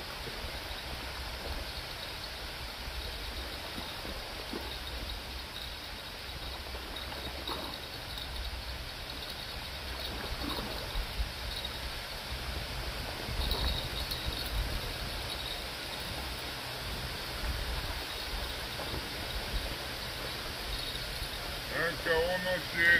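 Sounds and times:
river water lapping at shore: 0:00.0 - 0:22.9
wind gusting on microphone: 0:06.7 - 0:22.9.

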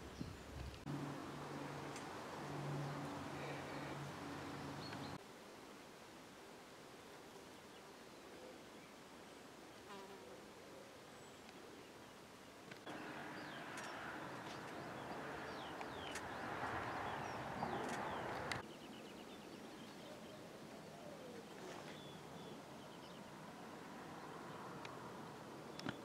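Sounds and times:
small birds chirping: 0:00.0 - 0:05.2, 0:11.0 - 0:26.0
countryside ambience: 0:00.0 - 0:26.0.

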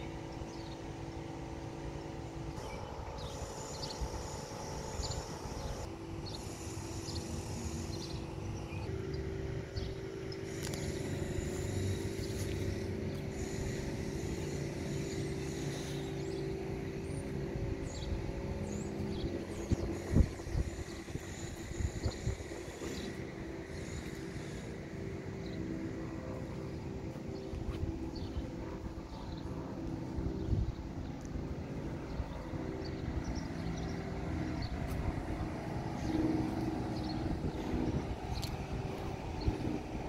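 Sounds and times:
engine idling: 0:00.0 - 0:27.6.

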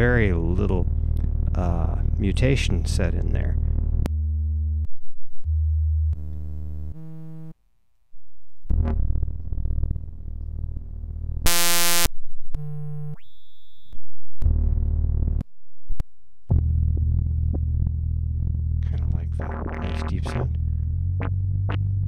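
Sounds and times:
low droning synth tones: 0:00.0 - 0:02.8, 0:08.2 - 0:13.2
noisy bass-heavy synth sounds: 0:05.5 - 0:07.5, 0:08.6 - 0:12.1, 0:16.5 - 0:22.0
high synth tone sliding upward: 0:11.5 - 0:12.1
buzzy synth tones: 0:11.5 - 0:13.9, 0:19.3 - 0:20.5.

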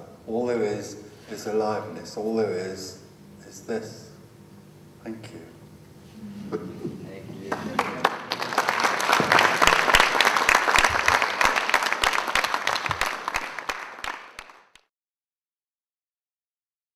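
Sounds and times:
audience applauding: 0:07.5 - 0:14.9.

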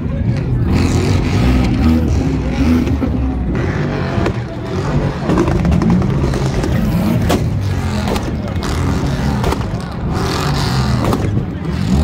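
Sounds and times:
car engine on rev limiter: 0:00.3 - 0:12.0
exhaust pops: 0:05.1 - 0:12.0.

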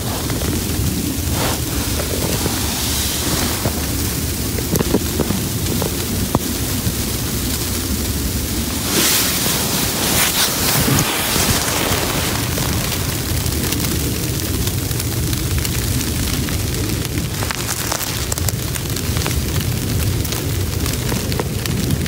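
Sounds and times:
fabric rustling: 0:00.0 - 0:06.3, 0:08.6 - 0:13.1
wind rumbling on microphone: 0:00.0 - 0:22.0.

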